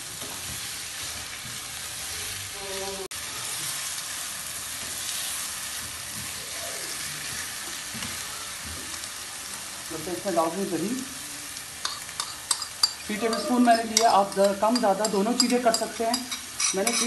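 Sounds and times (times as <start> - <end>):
chicken and onions sizzling: 0.0 - 17.0
spoon stirring and scraping: 11.8 - 17.0.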